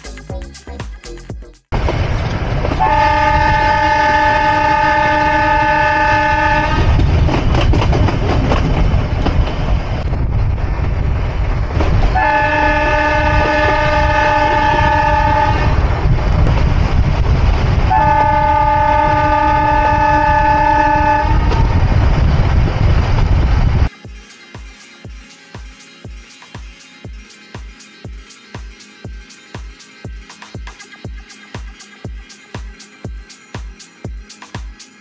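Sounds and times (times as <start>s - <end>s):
rumble of moving train: 1.1s - 24.0s
train horn blasts: 2.8s - 7.0s, 12.1s - 16.0s, 17.9s - 21.8s.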